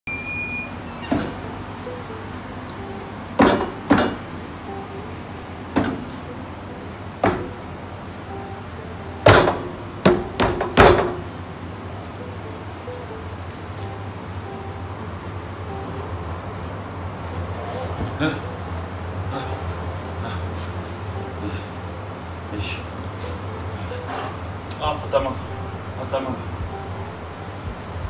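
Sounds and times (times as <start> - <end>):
fists banging on a table: 9.3 - 11.2.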